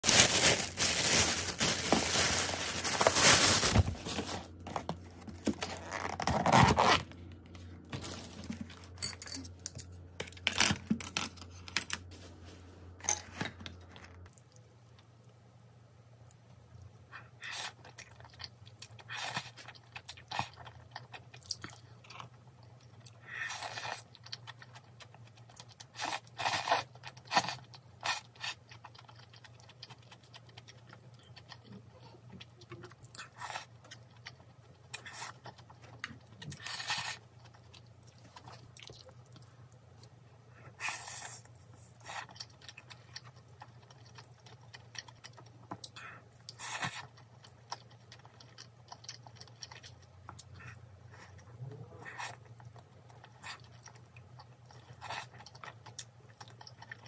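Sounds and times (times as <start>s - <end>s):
crunchy food chewing: 17.2s - 57.0s.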